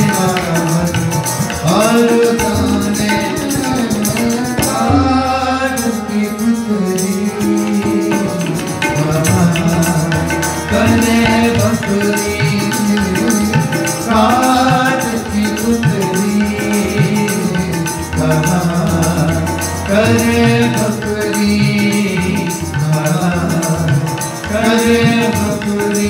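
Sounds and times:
harmonium melody: 0.0s - 26.0s
tabla drumming: 0.0s - 26.0s.

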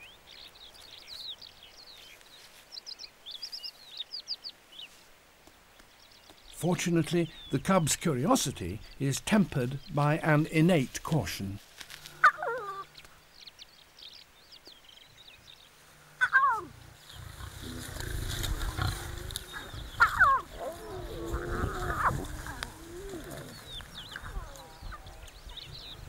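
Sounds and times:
lion cubs crying: 12.2s - 13.0s, 16.2s - 25.8s
lions growling: 17.1s - 25.6s.

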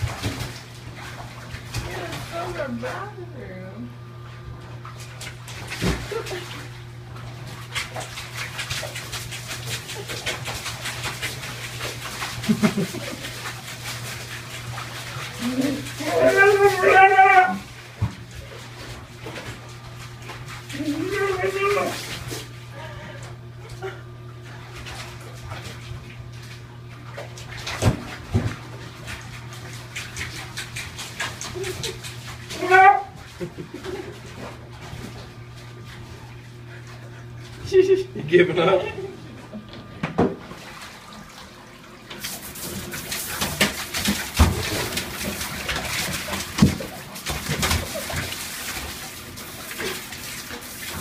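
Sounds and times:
steady low hum: 0.0s - 51.0s
water sloshing and splashing: 0.0s - 51.0s
puppy whining and yowling: 15.4s - 17.7s, 20.8s - 22.1s, 32.5s - 33.2s.

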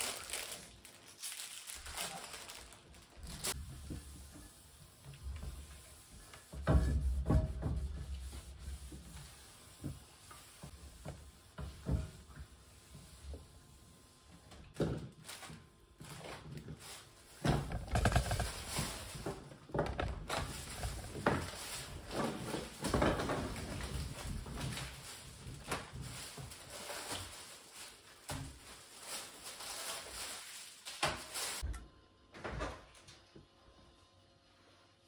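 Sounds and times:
rustling: 0.0s - 4.6s.

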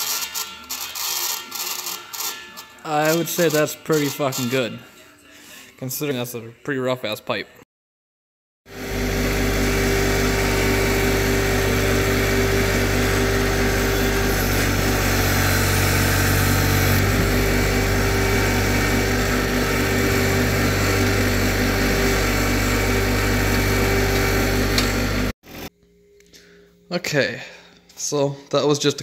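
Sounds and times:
tractor diesel engine running: 8.7s - 25.3s.

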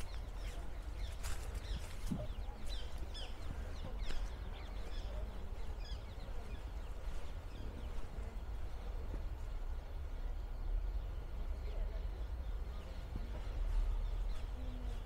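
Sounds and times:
footsteps on woodland path: 0.0s - 9.8s, 13.0s - 15.0s
small birds chirping: 0.0s - 15.0s.

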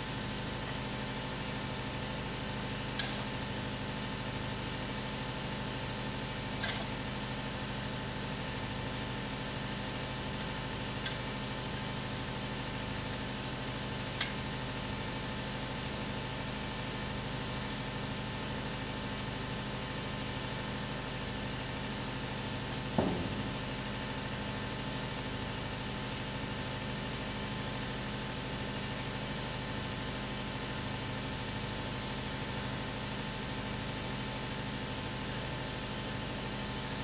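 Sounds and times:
engine idling hum: 18.4s - 26.8s
thump: 23.0s - 23.6s.

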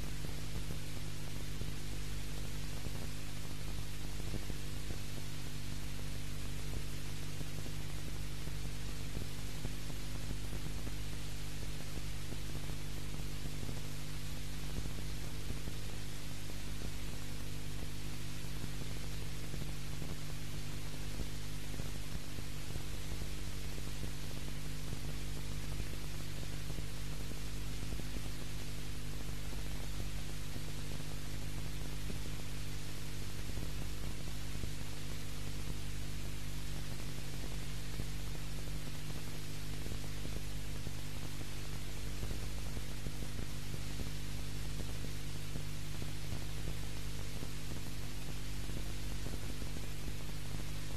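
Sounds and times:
constant hiss: 0.0s - 50.9s
electrical hum: 0.0s - 50.9s.

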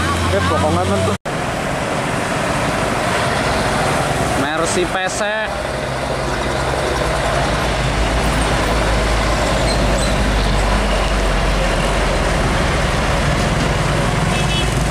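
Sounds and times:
diesel truck engines droning: 0.0s - 14.9s
road noise: 0.0s - 14.9s.

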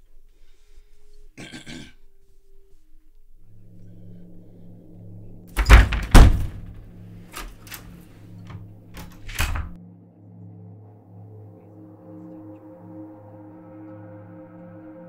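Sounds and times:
door handle and latch clicks: 5.6s - 6.7s, 7.4s - 7.9s, 8.5s - 9.8s
door thumping: 5.6s - 7.9s, 8.5s - 9.8s.

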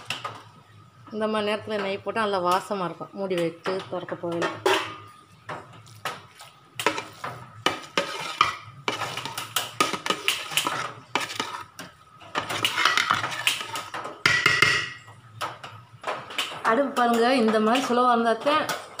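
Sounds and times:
spatula scraping a metal pot: 5.8s - 14.9s.

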